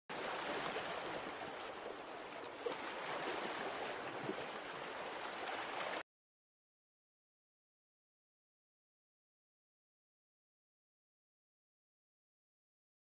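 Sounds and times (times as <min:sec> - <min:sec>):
rushing water: 0:00.1 - 0:06.0.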